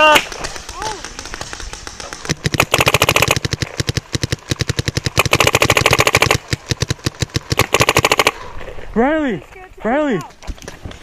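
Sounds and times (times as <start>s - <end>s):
paintball marker rapid firing: 0.0s - 8.4s.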